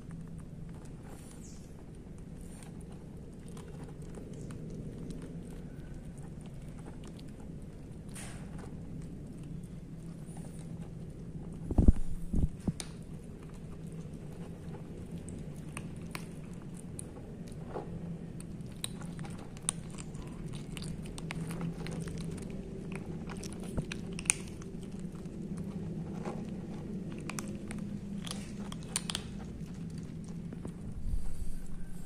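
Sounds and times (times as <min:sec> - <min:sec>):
kittens crunching dry kibble: 0:00.0 - 0:32.0
steady low hum: 0:00.0 - 0:32.0.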